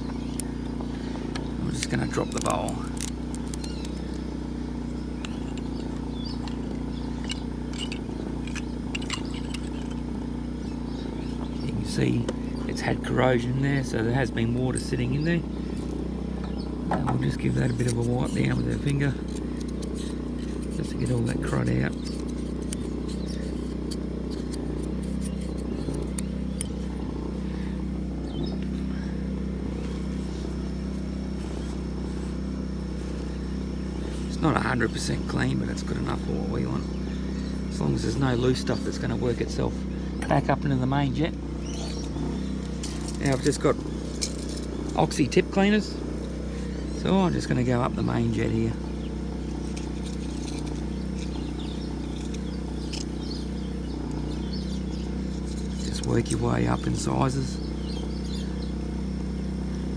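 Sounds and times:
generator humming: 0:00.0 - 0:59.9
ratchet spanner clicks: 0:01.3 - 0:10.1, 0:17.5 - 0:26.9, 0:41.6 - 0:45.4, 0:49.2 - 0:56.4.

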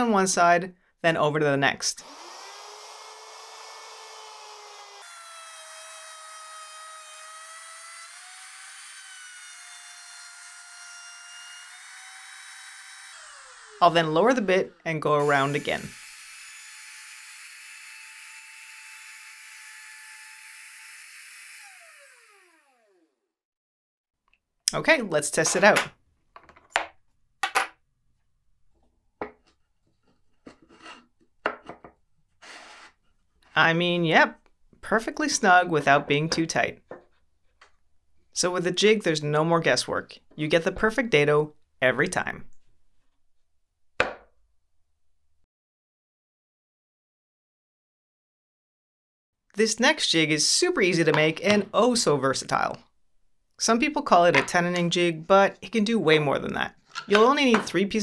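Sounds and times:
router motor whine: 0:02.0 - 0:23.3
wood scraping rub: 0:32.4 - 0:33.6
sharp wooden knocks and clacks: 0:44.0 - 0:44.3.

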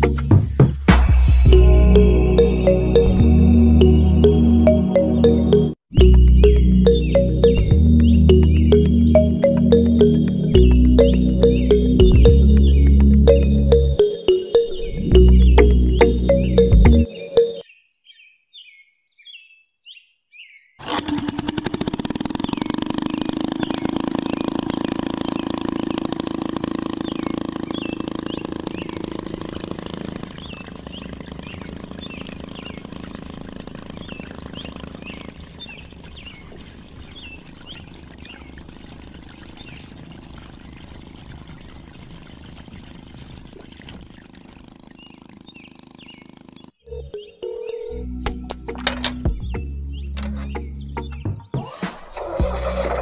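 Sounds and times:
small water pump humming: 0:06.0 - 0:14.4, 0:20.8 - 0:46.9
water hissing and splashing: 0:34.1 - 0:45.6.

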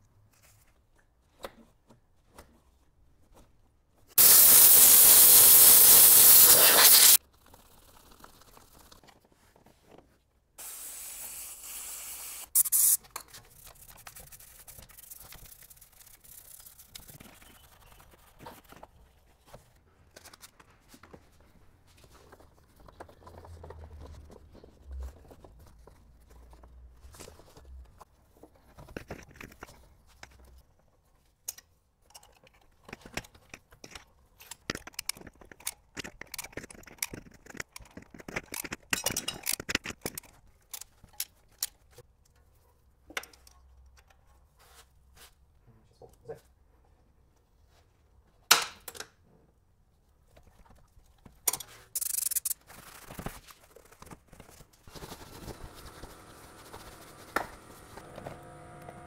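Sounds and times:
pressurised jet hissing: 0:04.2 - 0:07.2
faint clicks and rubbing: 0:13.2 - 0:42.6.

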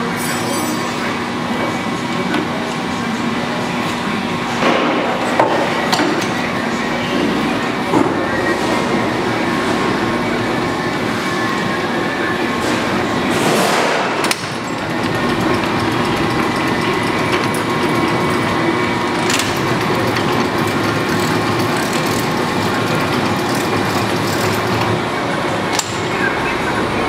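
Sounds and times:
lathe running: 0:14.3 - 0:27.0.

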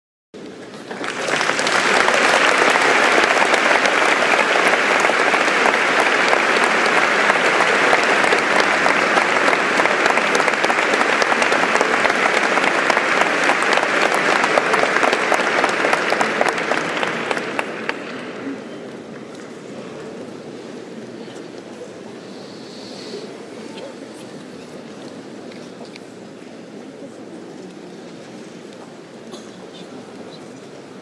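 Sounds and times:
audience applauding: 0:00.6 - 0:18.4.

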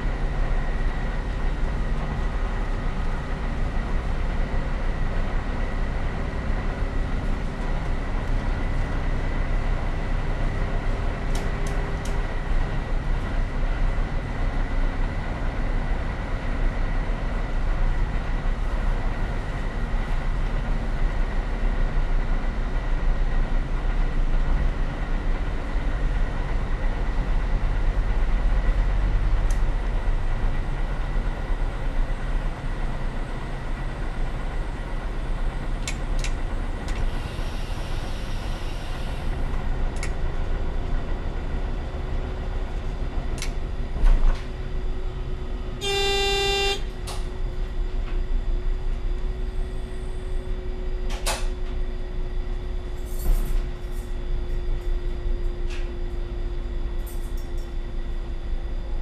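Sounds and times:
diesel railcar rumble: 0:00.0 - 0:59.0
train horn blast: 0:45.8 - 0:47.0.

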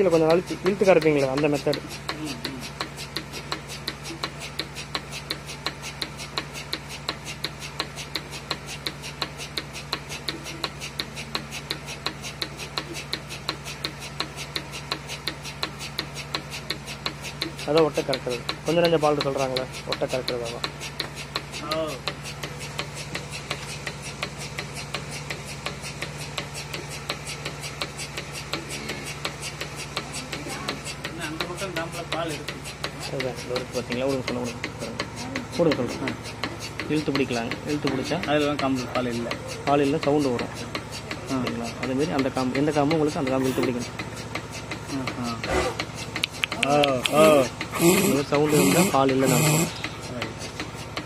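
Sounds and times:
milking machine pulsator clicks: 0:00.0 - 0:51.0
rapid even ticking: 0:00.0 - 0:51.0
vacuum pump hum: 0:00.0 - 0:51.0.

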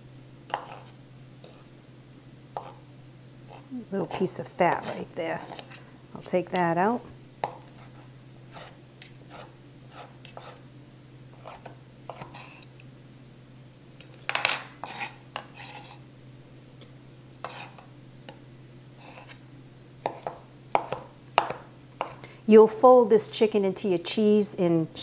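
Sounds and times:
knife chopping on wooden board: 0:20.0 - 0:22.2.

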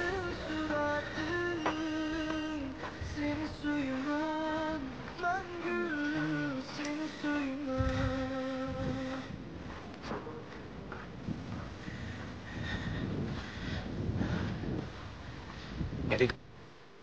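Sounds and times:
high voice singing: 0:00.0 - 0:09.4.

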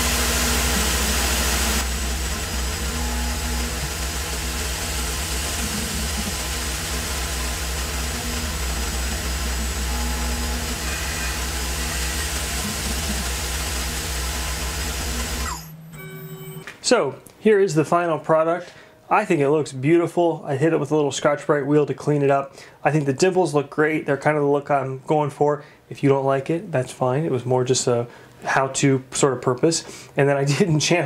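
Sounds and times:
machining hiss: 0:00.0 - 0:15.7
milling machine hum: 0:00.0 - 0:16.6
short machine tones: 0:00.7 - 0:16.7.

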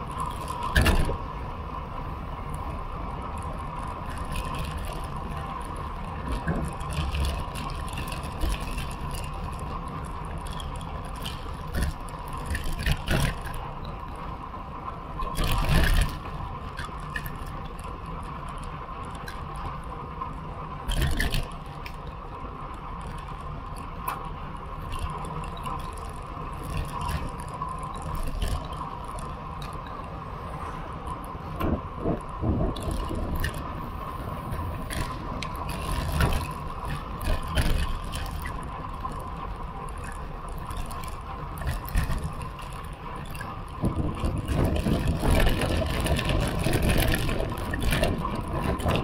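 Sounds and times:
bike rattling and knocking: 0:00.0 - 0:01.4, 0:02.4 - 0:14.3, 0:15.2 - 0:30.2, 0:31.0 - 0:49.0
bicycle tyre noise on asphalt: 0:00.0 - 0:49.0
wind noise: 0:24.9 - 0:49.0.

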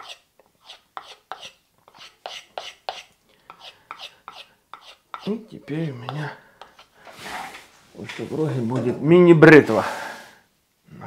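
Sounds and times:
knife scraping on strop: 0:00.0 - 0:07.7.

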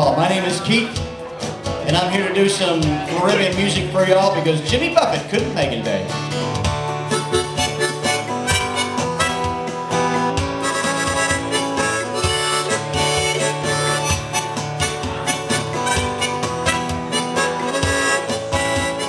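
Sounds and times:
strummed acoustic guitar: 0:00.0 - 0:19.0
harmonica melody: 0:06.4 - 0:19.0.

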